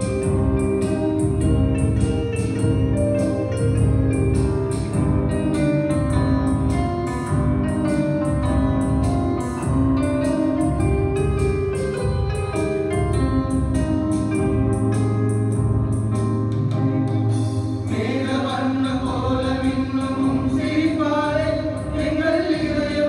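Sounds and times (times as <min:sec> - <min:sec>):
drums keeping a steady beat: 0:00.0 - 0:18.2, 0:18.9 - 0:23.0
electric guitar: 0:00.0 - 0:20.6
electronic keyboard: 0:00.0 - 0:23.0
male group singing: 0:17.9 - 0:23.0.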